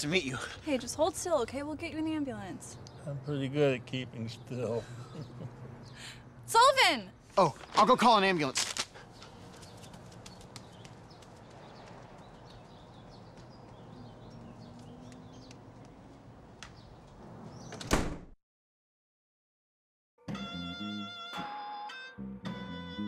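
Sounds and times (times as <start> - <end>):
door slamming shut: 17.6 - 18.4.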